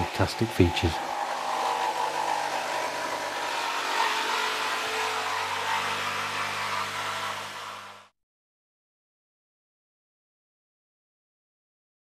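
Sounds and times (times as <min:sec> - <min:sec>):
jigsaw cutting wood: 0:00.0 - 0:08.1.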